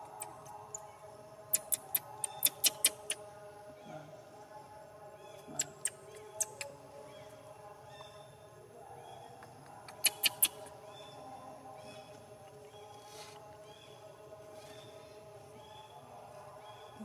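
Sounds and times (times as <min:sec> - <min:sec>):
baby monkeys squeaking: 0:01.6 - 0:03.2, 0:10.0 - 0:10.6.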